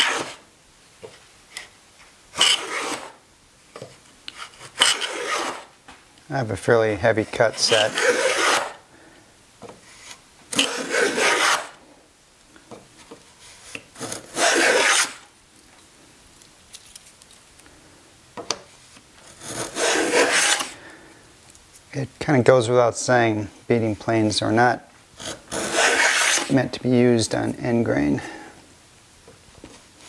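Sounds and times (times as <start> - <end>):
plane rasping along wood: 0.0 - 0.4, 2.4 - 3.2, 4.4 - 5.7, 7.4 - 8.8, 10.6 - 11.8, 14.0 - 15.2, 19.3 - 20.7, 25.2 - 26.6.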